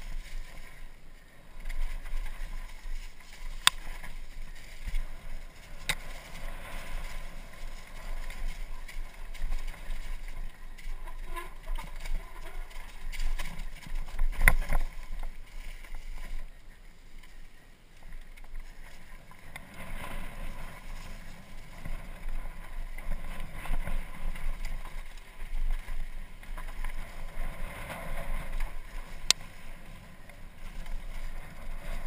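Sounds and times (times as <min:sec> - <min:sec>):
bike tyres rumbling on dirt: 0:00.0 - 0:32.0.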